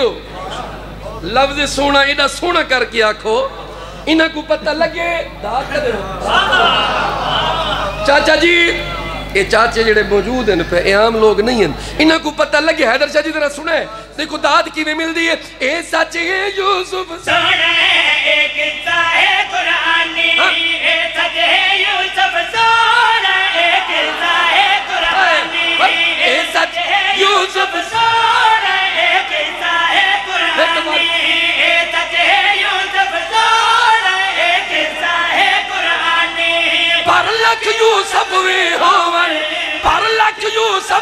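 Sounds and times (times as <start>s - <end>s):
men singing in chorus: 17.2s - 40.0s.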